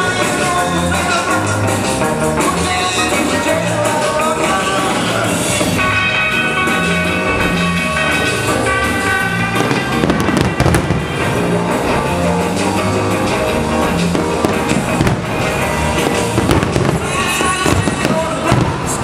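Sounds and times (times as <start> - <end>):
music: 0.0 - 19.0
fireworks cracks and bangs: 6.7 - 19.0.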